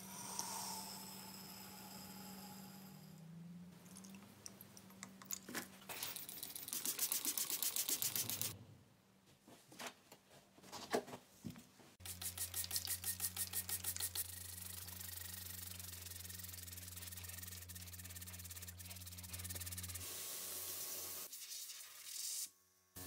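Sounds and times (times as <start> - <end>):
low hum: 0.0 - 5.1
spray bottle squirting hisses: 6.2 - 8.6, 12.0 - 20.1.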